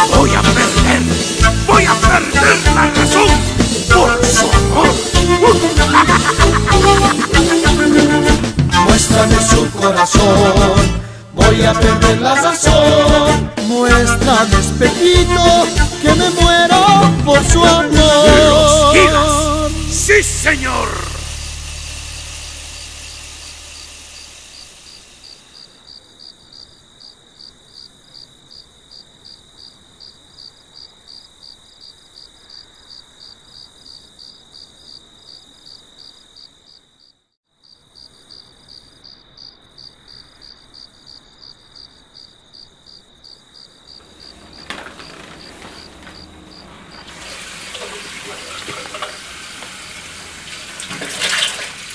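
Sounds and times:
crickets chirping: 0.0s - 11.3s, 18.1s - 50.8s
music: 0.0s - 24.2s
tap running into sink: 47.0s - 51.9s.

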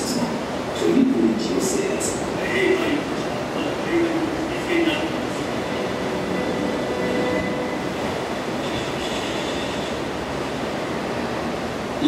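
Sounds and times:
rumbling over loudspeakers: 0.0s - 8.6s.

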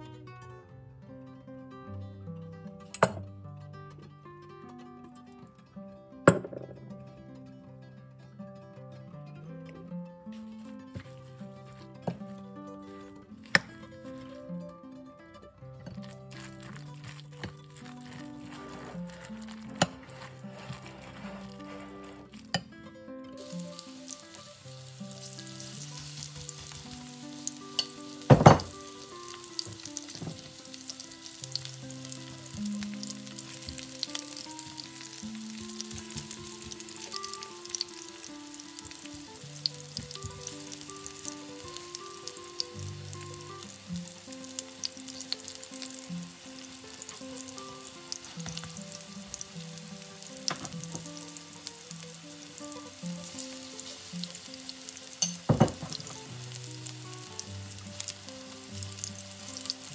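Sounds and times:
fritters sizzling in oil: 15.9s - 22.6s, 23.4s - 59.9s.

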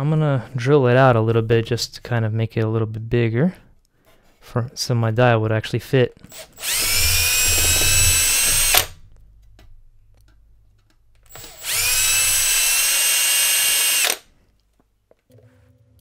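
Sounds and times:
cordless drill whining: 6.3s - 9.0s, 11.3s - 14.3s.

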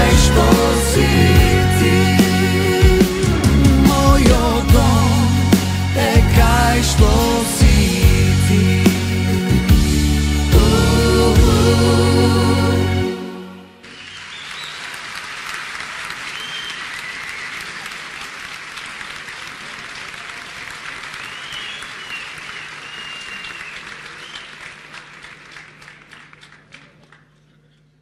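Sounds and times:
large audience applauding: 13.8s - 27.7s.

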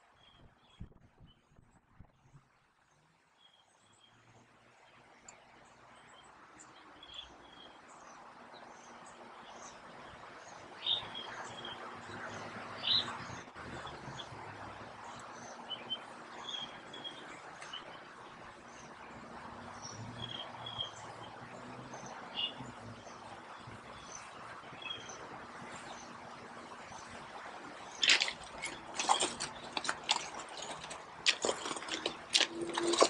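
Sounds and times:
small birds chirping: 2.3s - 33.0s
footsteps on river stones: 27.8s - 33.0s.

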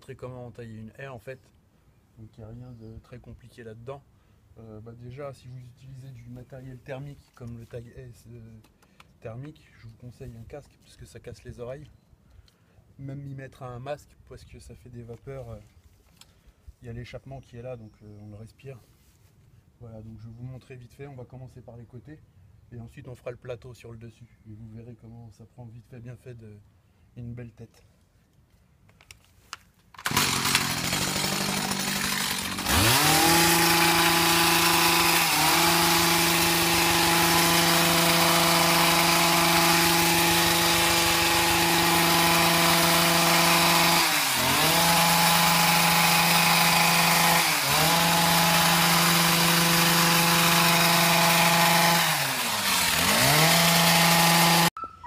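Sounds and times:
hedge trimmer engine revving: 30.0s - 54.7s.

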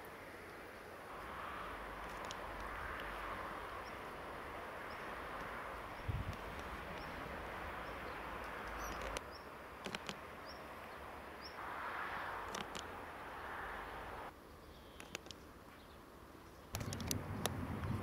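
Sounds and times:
steady rushing hiss: 0.0s - 18.0s
faint clicks: 2.0s - 3.3s, 6.2s - 7.2s, 8.4s - 10.2s, 12.4s - 12.9s, 15.0s - 15.5s, 16.7s - 18.0s.

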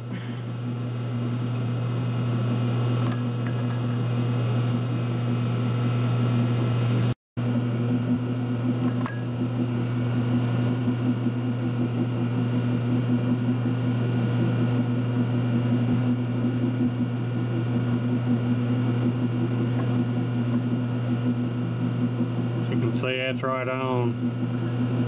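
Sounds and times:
electric hum of machinery: 0.0s - 25.0s.

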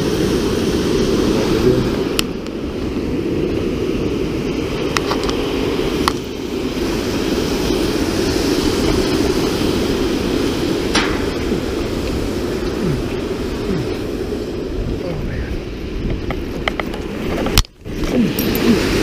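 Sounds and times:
water rushing through dam gate: 6.8s - 15.2s.

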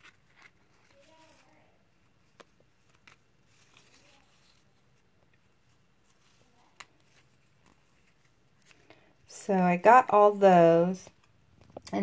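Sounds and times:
faint paper rustling: 0.0s - 9.4s.

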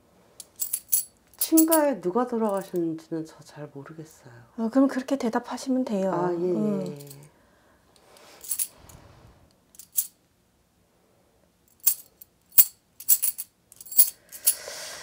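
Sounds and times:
coins clinking together: 0.4s - 1.8s, 8.4s - 8.7s, 9.8s - 10.1s, 11.8s - 14.6s
coins dropping onto table: 0.4s - 1.8s, 9.8s - 10.2s, 11.8s - 14.6s.

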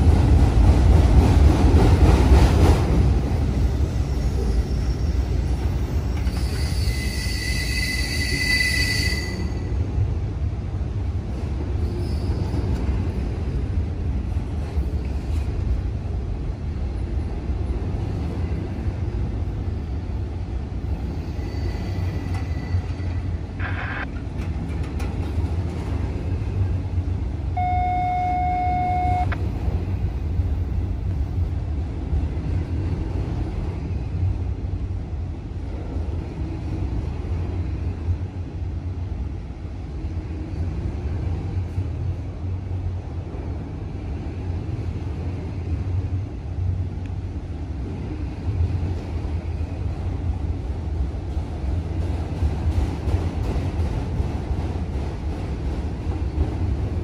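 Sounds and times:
vehicle horn toot: 27.6s - 29.3s.

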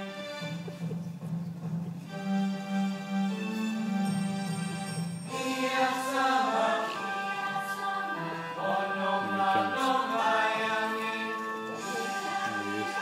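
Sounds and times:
musical accompaniment: 0.0s - 13.0s
chorus singing: 5.3s - 13.0s.

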